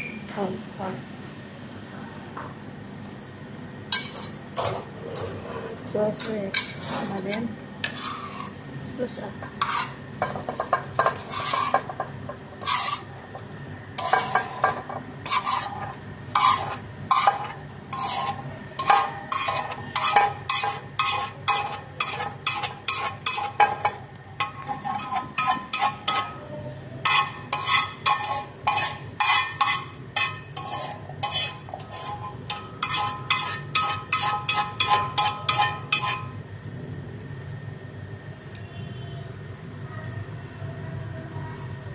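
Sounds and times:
metal utensil scraping frying pan: 0:03.9 - 0:08.6, 0:09.4 - 0:36.4.

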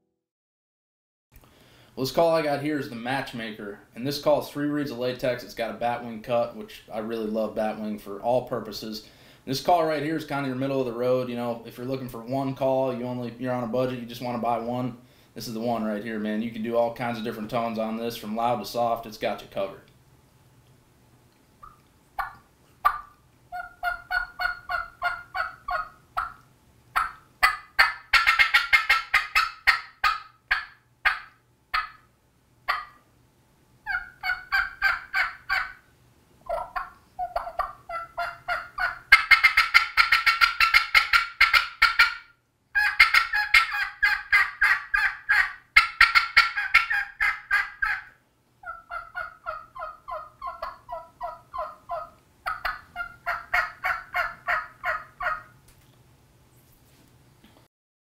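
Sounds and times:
turkey call yelps: 0:21.6 - 0:26.4, 0:27.0 - 0:32.1, 0:32.7 - 0:33.0, 0:33.8 - 0:35.8, 0:36.5 - 0:55.6.

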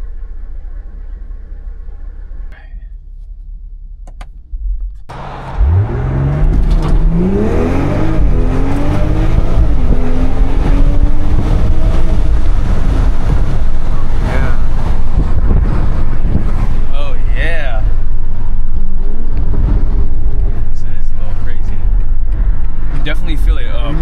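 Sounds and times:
car engine idling and accelerating: 0:00.0 - 0:24.0
road noise: 0:00.0 - 0:24.0.

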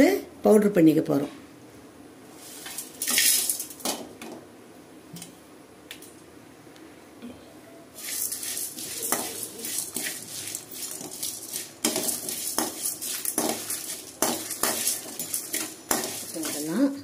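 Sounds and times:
metal spatula scraping a metal pan: 0:08.0 - 0:17.0
seeds rattling: 0:08.0 - 0:17.0.

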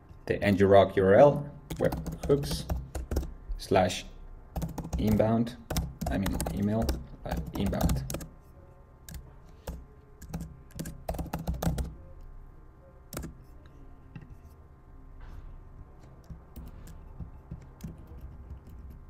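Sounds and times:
typing on computer keyboard: 0:01.7 - 0:03.4, 0:04.5 - 0:08.4, 0:09.0 - 0:12.0, 0:13.1 - 0:13.5, 0:16.2 - 0:19.0.

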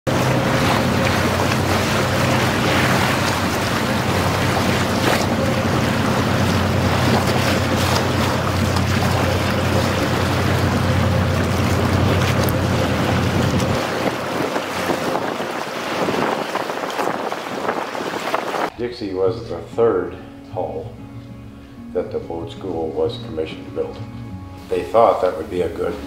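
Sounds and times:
water rushing along hull: 0:00.0 - 0:18.8
boat engine running: 0:00.0 - 0:26.0
wind buffeting microphone: 0:00.1 - 0:18.8.

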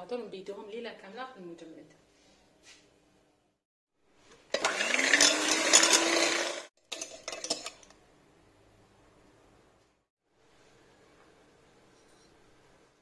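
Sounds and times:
electric hand mixer whipping: 0:04.5 - 0:06.7.

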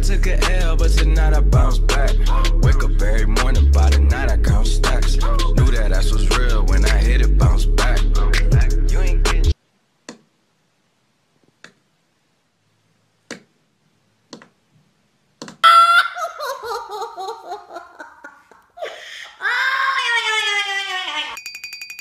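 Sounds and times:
person laughing: 0:15.6 - 0:21.4.

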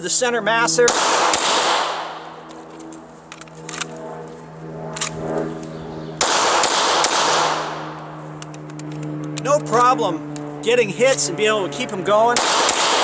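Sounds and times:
steady low hum: 0:00.0 - 0:13.0
pistol shots: 0:00.8 - 0:02.2, 0:06.2 - 0:07.8, 0:12.4 - 0:13.0.

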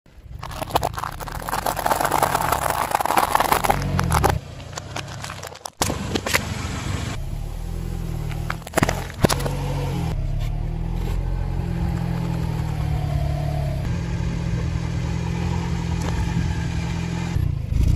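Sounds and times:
car engine running low: 0:00.1 - 0:17.9
pasta crunching under car tyre: 0:00.2 - 0:06.0
tyre cracking food packet: 0:00.4 - 0:05.8.

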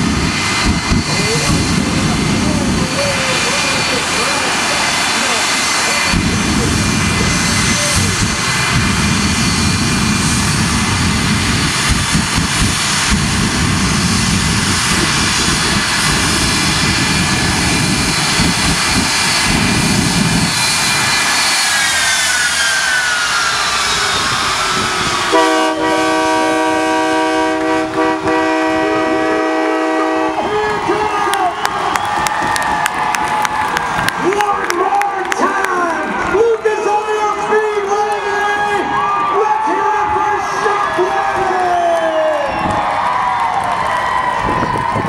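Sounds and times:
jet engines rumbling and whining: 0:00.0 - 0:45.0
horn chord: 0:25.3 - 0:30.3.

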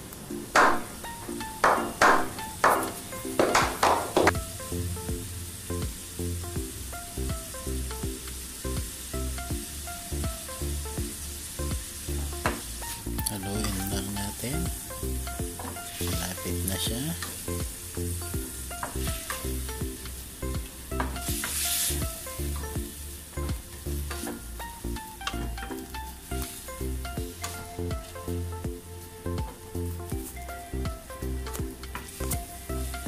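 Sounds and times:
background music with low beat: 0:00.0 - 0:33.0
liver sizzling in a frying pan: 0:06.7 - 0:13.1, 0:17.1 - 0:24.8, 0:25.7 - 0:28.2
wooden spatula stirring: 0:18.7 - 0:33.0.

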